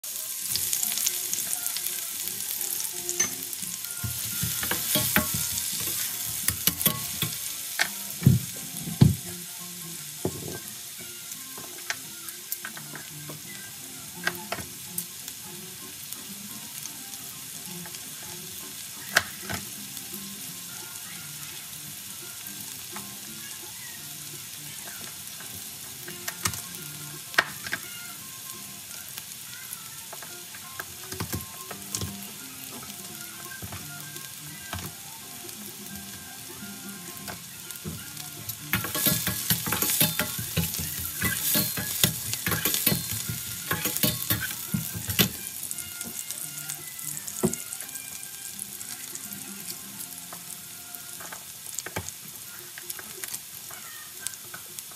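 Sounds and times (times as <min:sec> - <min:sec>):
onions sizzling in oil: 0:00.0 - 0:54.9
metal spatula scraping a pan: 0:03.1 - 0:07.6, 0:38.5 - 0:46.3.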